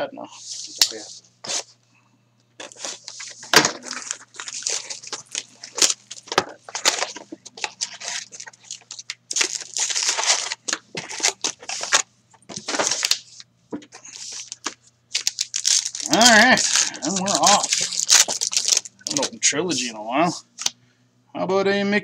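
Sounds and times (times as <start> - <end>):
packs sliding out: 2.6 - 13.2
plastic shrink-wrap crinkling: 2.6 - 13.4, 14.0 - 19.4.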